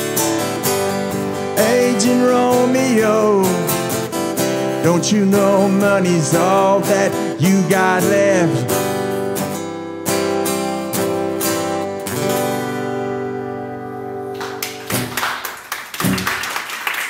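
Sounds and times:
acoustic guitar strumming: 0.0s - 15.1s
audience clapping: 14.3s - 17.0s.

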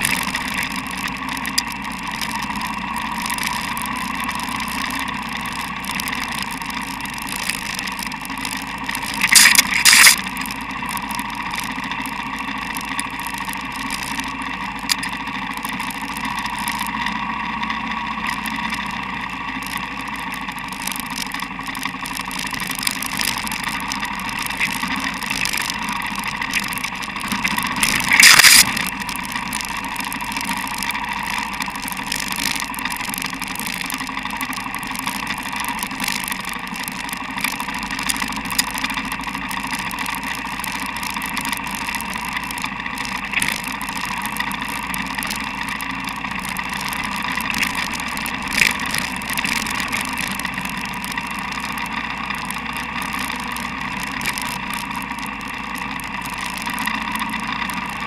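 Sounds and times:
motorcycle engine running: 0.0s - 58.0s
loud bursts of noise: 8.3s - 13.6s, 20.8s - 56.8s.

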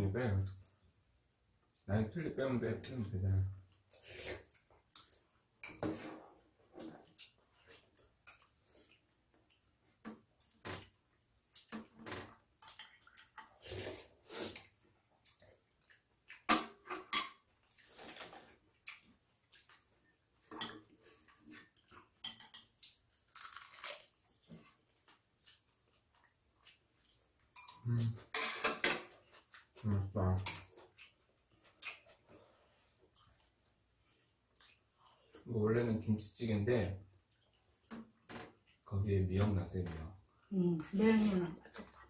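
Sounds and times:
chewing: 12.6s - 16.5s, 17.6s - 20.2s, 30.8s - 35.4s
utensils clinking on ceramic bowls: 30.4s - 30.8s.

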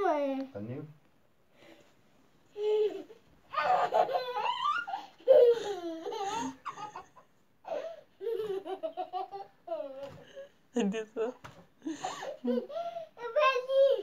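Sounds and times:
child laughing and squealing: 3.5s - 6.8s.

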